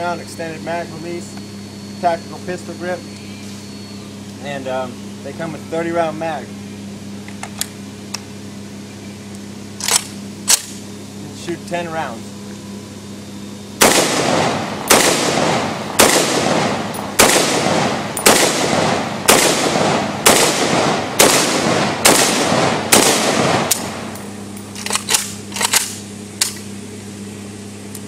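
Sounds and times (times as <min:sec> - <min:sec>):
pistol gunshots with echo: 0:13.8 - 0:24.1.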